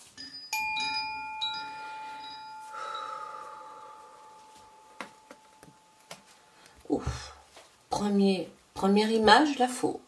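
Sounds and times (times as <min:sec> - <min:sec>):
bell-like metal chime: 0:00.2 - 0:06.1.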